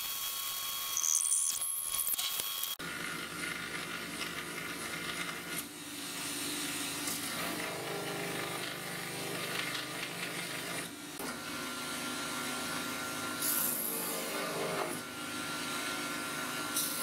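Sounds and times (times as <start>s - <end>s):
belt grinder grinding: 7.1s - 10.9s.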